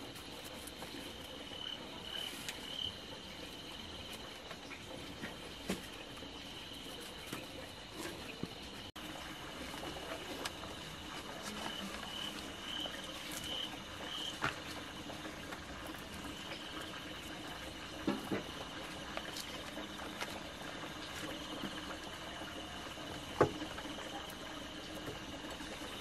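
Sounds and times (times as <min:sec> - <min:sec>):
pulsing insect trill: 0:00.0 - 0:26.0
leaves crinkling and rustling: 0:09.0 - 0:17.5, 0:18.8 - 0:21.8.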